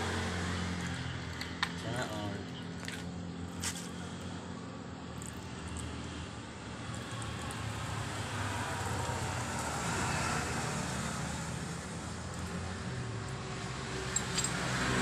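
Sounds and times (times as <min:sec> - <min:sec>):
vehicle engine passing by: 0:00.0 - 0:02.2, 0:05.2 - 0:15.0.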